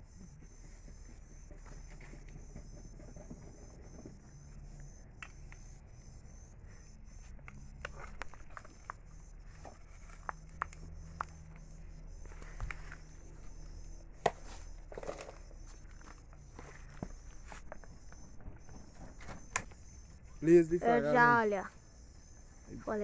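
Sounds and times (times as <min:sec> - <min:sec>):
footsteps shuffling: 0:07.2 - 0:19.5.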